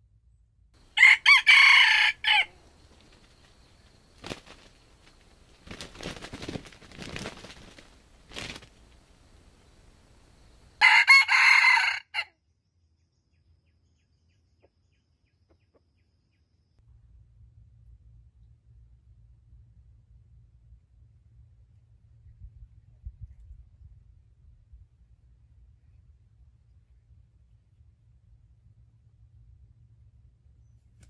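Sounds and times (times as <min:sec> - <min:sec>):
rooster crowing: 0:00.8 - 0:03.7, 0:10.4 - 0:12.3
soft rustles: 0:02.6 - 0:10.2.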